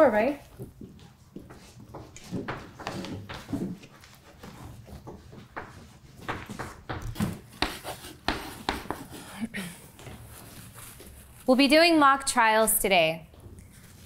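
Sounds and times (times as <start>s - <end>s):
soft rustling: 8.9s - 12.1s, 13.4s - 14.0s.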